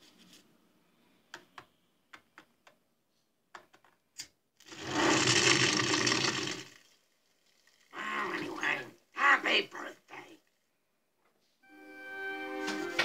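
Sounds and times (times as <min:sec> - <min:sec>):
cartoon fire rush: 0:04.7 - 0:06.8.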